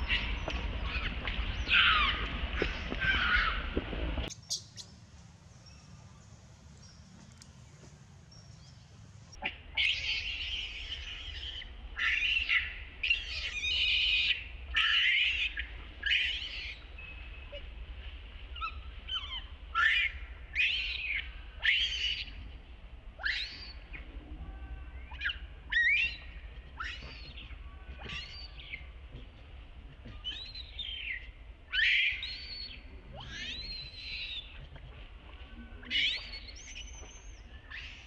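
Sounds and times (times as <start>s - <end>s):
baby monkey screeching: 31.8s - 32.6s.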